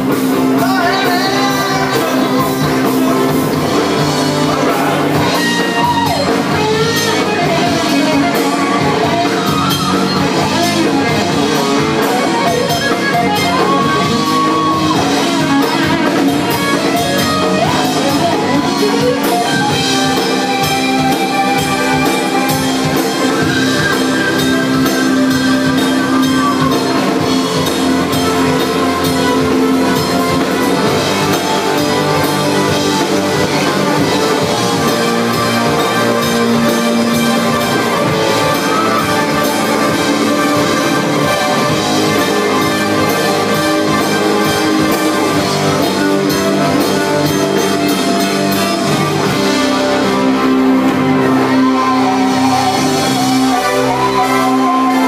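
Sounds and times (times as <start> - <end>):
bass guitar: 0.0 - 55.0
drum kit: 0.0 - 55.0
electric guitars: 0.0 - 55.0
person singing: 0.3 - 24.0, 50.1 - 55.0.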